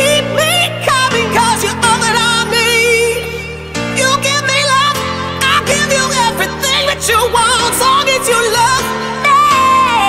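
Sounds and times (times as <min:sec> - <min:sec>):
person singing with heavy vibrato: 0:00.0 - 0:10.0.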